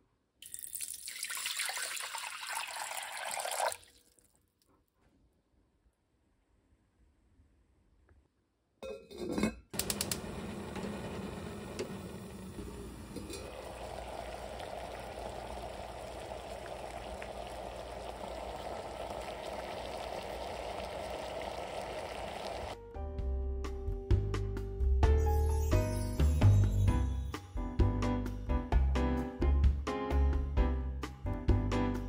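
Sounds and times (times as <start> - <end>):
water boiling: 0.4 - 4.3, 9.8 - 22.8.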